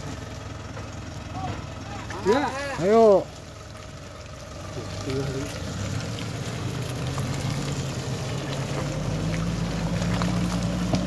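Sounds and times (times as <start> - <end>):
car engine under load: 0.0 - 11.0
tyres spattering in mud: 4.9 - 11.0.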